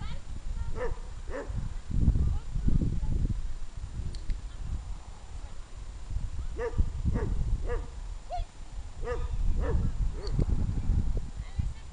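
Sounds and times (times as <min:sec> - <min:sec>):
young dog yipping: 0:06.6 - 0:10.4.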